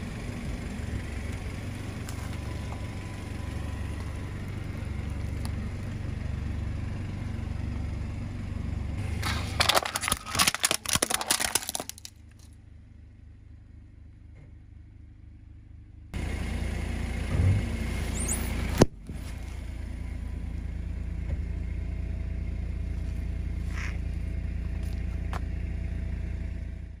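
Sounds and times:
car engine idling: 0:00.0 - 0:27.0
tyre crunching objects: 0:09.0 - 0:12.5.

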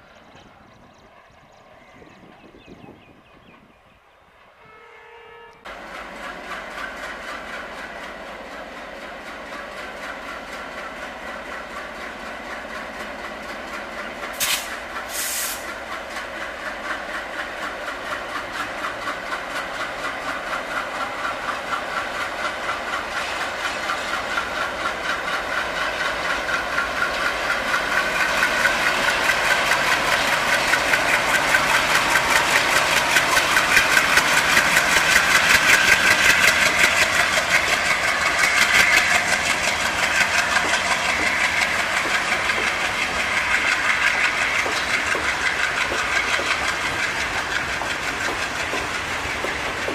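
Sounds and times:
diesel locomotive engine throbbing: 0:00.0 - 0:49.9
short hisses: 0:14.4 - 0:15.7.

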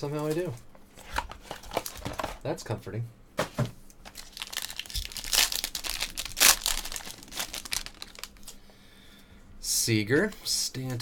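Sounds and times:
foil wrapper tearing and rustling: 0:04.1 - 0:08.6.

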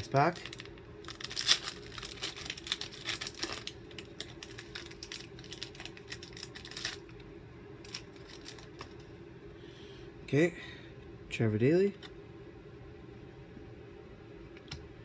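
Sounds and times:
plastic wrapper tearing and crinkling: 0:00.0 - 0:07.2, 0:07.8 - 0:09.0
steady low hum: 0:00.0 - 0:15.0.

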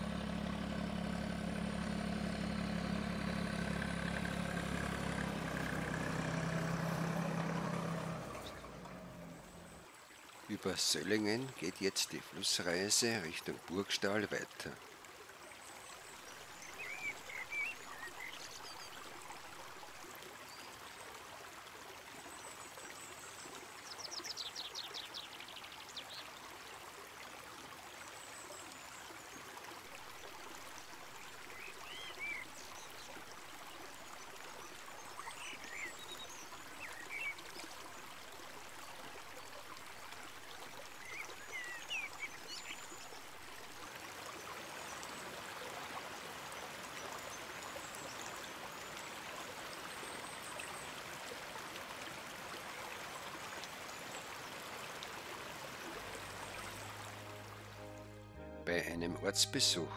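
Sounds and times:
river rushing over stones: 0:25.2 - 0:58.0.

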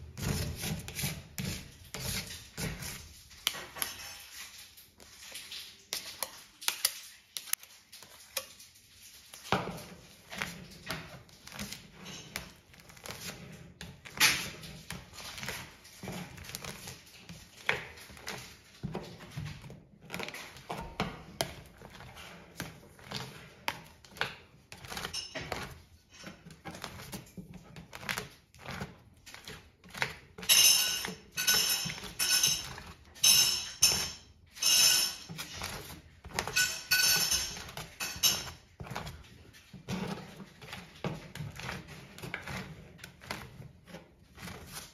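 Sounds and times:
metal spatulas scraping metal plate: 0:30.0 - 0:38.6.

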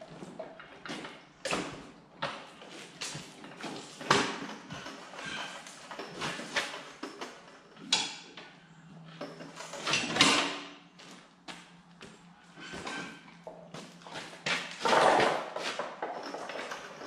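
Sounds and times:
metal parts clunking and knocking: 0:09.1 - 0:10.7, 0:14.4 - 0:17.0.

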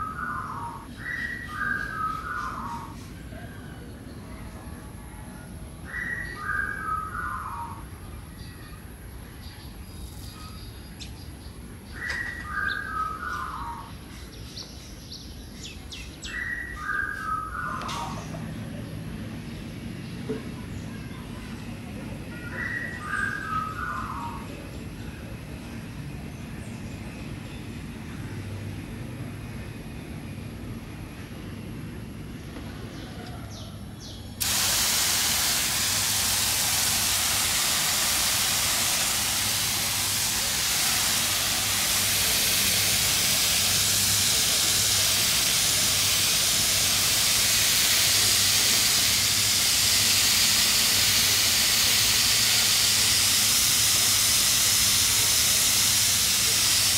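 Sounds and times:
water spraying hiss: 0:34.4 - 0:56.9.

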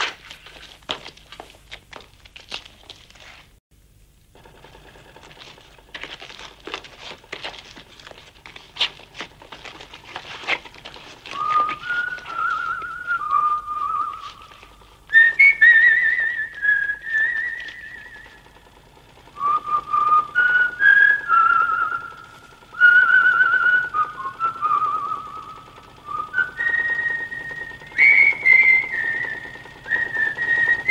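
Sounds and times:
irregular clicks and scuffs: 0:00.0 - 0:03.6, 0:05.2 - 0:15.8
person whistling a tune: 0:11.3 - 0:14.5, 0:15.1 - 0:18.4, 0:19.4 - 0:30.9.

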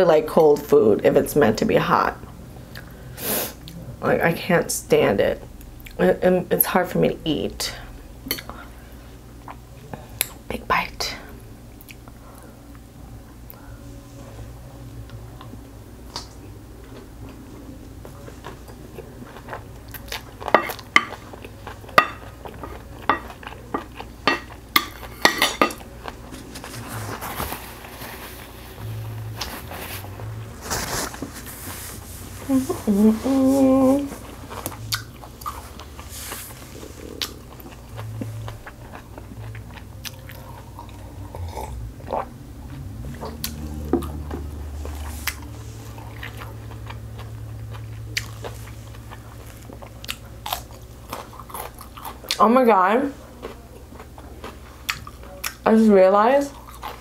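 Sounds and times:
person humming: 0:32.4 - 0:34.4
close chewing: 0:34.1 - 0:52.4, 0:53.3 - 0:55.6.

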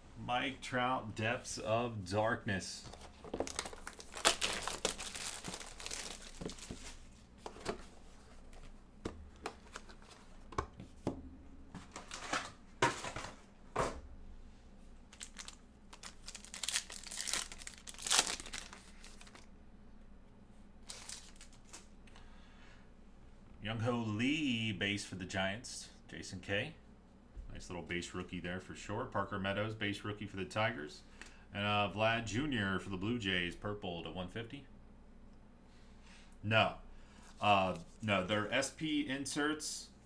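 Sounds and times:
plastic wrapping crinkling and tearing: 0:03.2 - 0:07.1, 0:15.1 - 0:19.5, 0:20.8 - 0:21.9.

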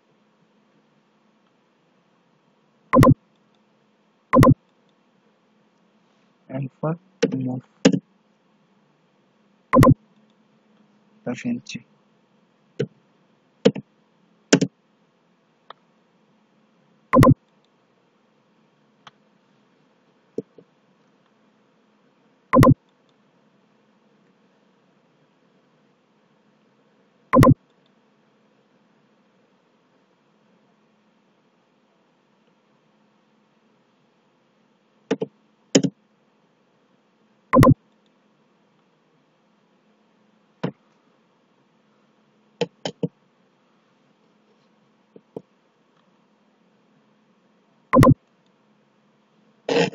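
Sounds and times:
faint steady hum: 0:00.0 - 0:49.9
keyboard and mouse clicks: 0:03.0 - 0:03.2, 0:04.4 - 0:04.6, 0:07.2 - 0:08.0, 0:09.8 - 0:10.0, 0:13.6 - 0:13.8, 0:17.2 - 0:17.4, 0:22.6 - 0:22.8, 0:27.4 - 0:27.6, 0:35.1 - 0:35.9, 0:37.6 - 0:37.8, 0:42.6 - 0:43.1, 0:48.0 - 0:48.2.

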